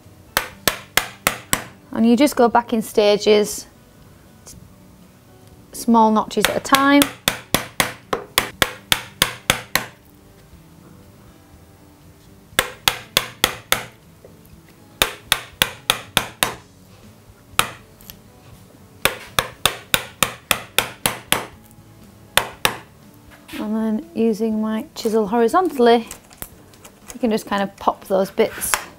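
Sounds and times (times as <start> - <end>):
mallet striking chisel into wood: 0.3 - 1.8, 6.4 - 10.0, 12.6 - 14.0, 15.0 - 16.6, 17.6 - 17.8, 19.0 - 21.6, 22.4 - 22.9.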